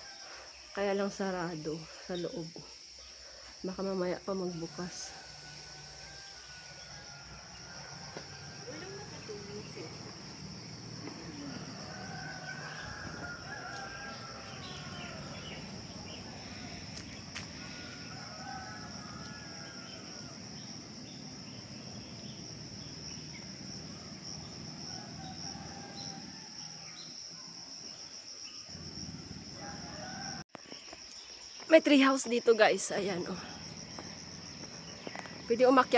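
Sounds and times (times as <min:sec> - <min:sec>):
high drone of insects: 0:00.0 - 0:35.9
rooster crowing: 0:04.7 - 0:16.7, 0:17.6 - 0:21.0, 0:23.8 - 0:27.1, 0:29.2 - 0:30.5.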